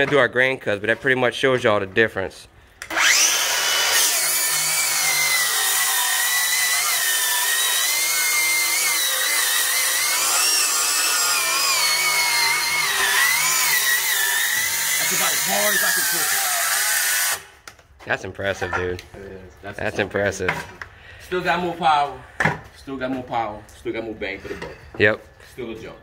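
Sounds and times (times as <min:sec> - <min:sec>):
circular saw cutting wood: 0:02.8 - 0:17.6.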